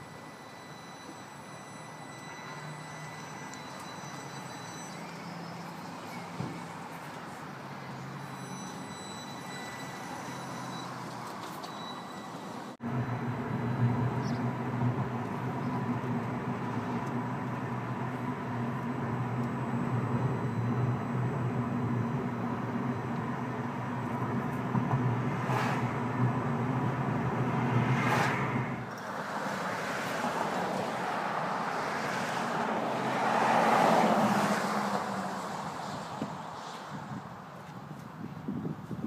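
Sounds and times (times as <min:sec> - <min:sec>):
outdoor rush: 0:00.0 - 0:39.0
tyre and road noise in car: 0:00.0 - 0:39.0
car passing: 0:07.6 - 0:37.5.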